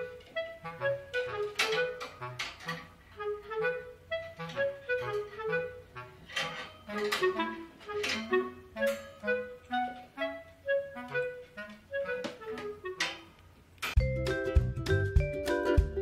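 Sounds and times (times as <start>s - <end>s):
background music with steady beat: 6.6s - 16.0s.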